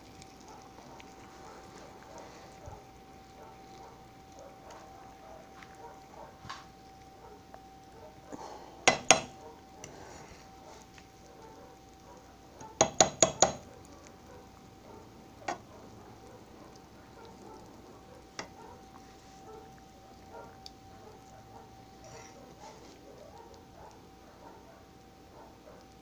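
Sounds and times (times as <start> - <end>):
faint steady hum: 0.0 - 26.0
utensil knocking against skillet: 8.9 - 9.3, 12.8 - 13.6.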